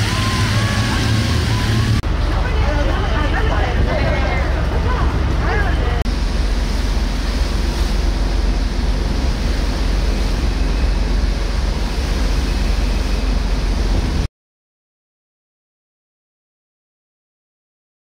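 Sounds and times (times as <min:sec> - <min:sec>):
choppy sea water: 0:00.0 - 0:14.3
wind buffeting microphone: 0:00.0 - 0:14.3.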